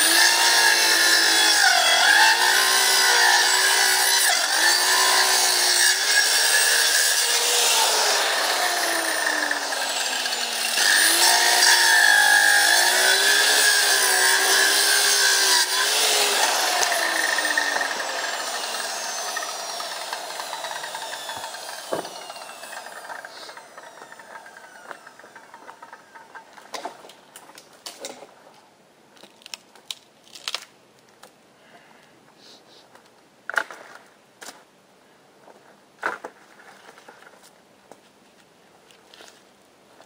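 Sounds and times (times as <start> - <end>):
power saw winding down: 0.0 - 26.3.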